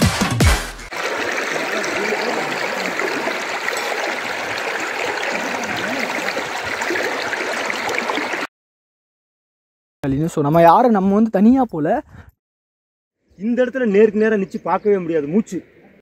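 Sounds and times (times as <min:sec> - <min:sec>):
music: 0:00.0 - 0:00.9
waterfall rushing: 0:00.9 - 0:08.5.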